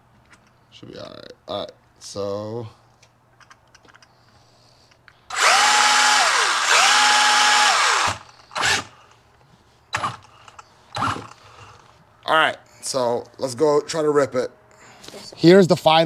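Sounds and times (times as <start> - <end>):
electric motor whining: 5.3 - 8.9.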